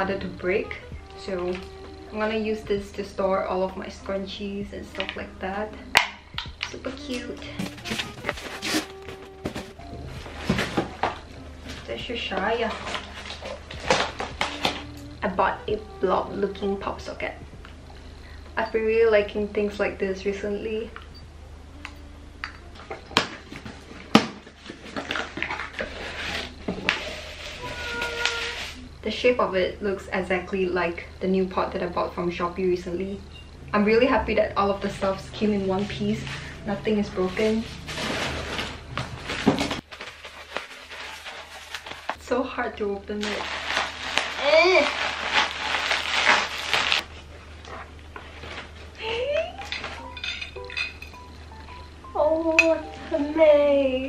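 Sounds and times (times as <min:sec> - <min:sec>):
plastic crinkling: 0:06.6 - 0:15.0, 0:23.0 - 0:28.9, 0:35.7 - 0:42.4, 0:43.0 - 0:51.0
wrapping rustling: 0:07.0 - 0:15.0, 0:23.3 - 0:28.9, 0:35.4 - 0:50.2
cardboard box being opened: 0:07.6 - 0:11.8.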